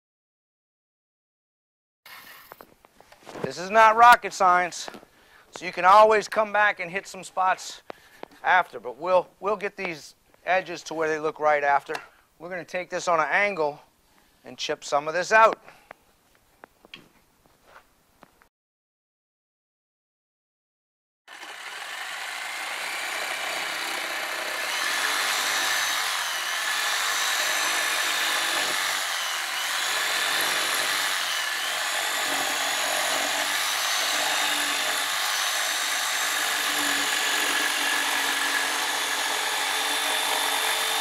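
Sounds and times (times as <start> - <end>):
jigsaw cutting wood: 21.3 - 41.0.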